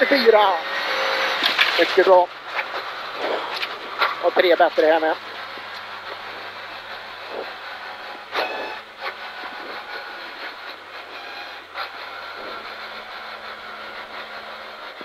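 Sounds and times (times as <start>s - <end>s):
car engine running low: 0.0s - 15.0s
tyres rumbling on gravel: 0.0s - 15.0s
rattles and knocks from car body: 1.3s - 11.0s.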